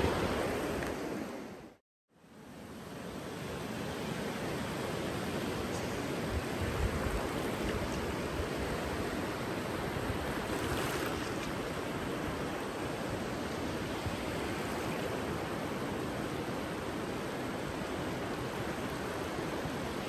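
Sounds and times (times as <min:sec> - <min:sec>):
ocean surf rushing: 0:00.0 - 0:01.8, 0:02.7 - 0:20.0.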